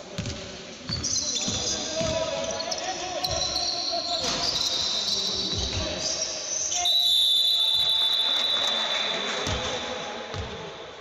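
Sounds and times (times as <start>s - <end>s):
basketball bouncing on wooden court: 0.1s - 2.4s.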